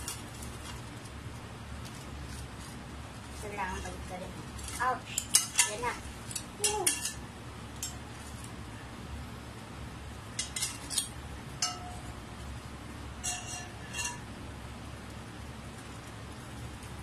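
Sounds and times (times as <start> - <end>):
metal tongs clinking on glass: 5.2 - 7.2, 10.4 - 12.2, 13.2 - 14.2.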